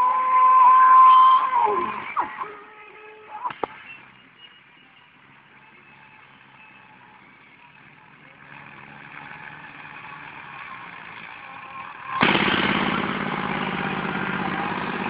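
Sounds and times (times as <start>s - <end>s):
tractor diesel engine running: 3.5s - 15.0s.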